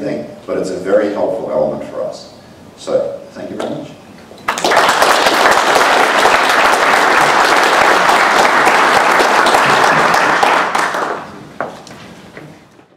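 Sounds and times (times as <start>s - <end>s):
audience applauding: 4.5s - 11.4s.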